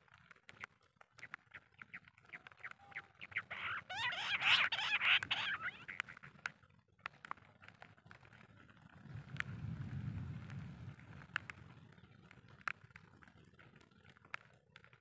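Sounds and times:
quail clicking and chirping: 0.2s - 9.5s.

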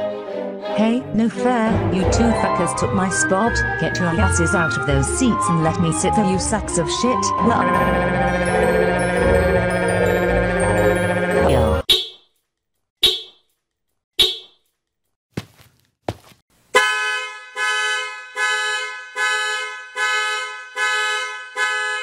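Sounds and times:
car alarm horn honking: 16.7s - 22.0s.

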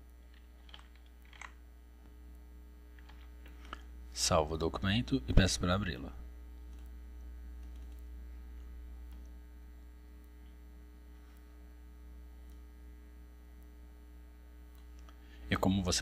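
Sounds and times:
low mains hum: 0.0s - 16.0s
faint clicks: 6.6s - 7.0s, 7.6s - 8.1s.

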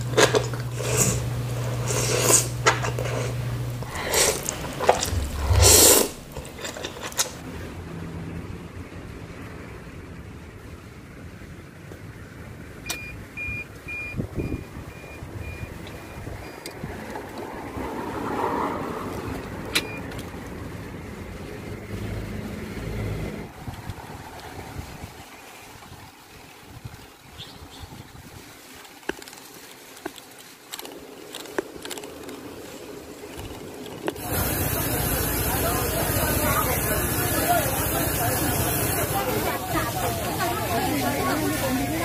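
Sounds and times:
vehicle passing: 0.0s - 10.2s, 16.8s - 24.7s
street traffic: 0.0s - 26.0s, 28.6s - 42.0s
loud slurp of noodles: 0.1s - 7.4s.

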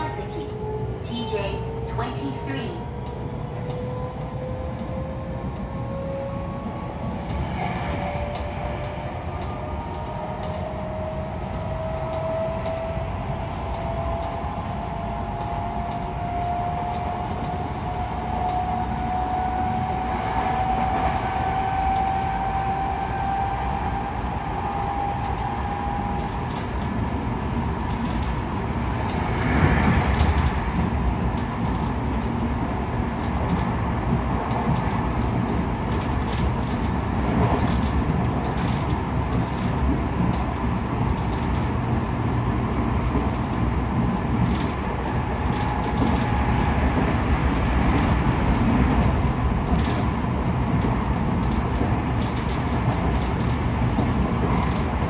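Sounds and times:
wheels rumbling on rails: 0.0s - 55.0s.

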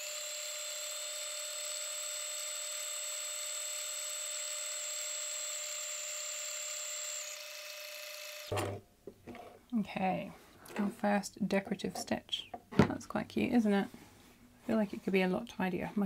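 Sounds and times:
sewing machine motor whining: 0.0s - 8.5s.

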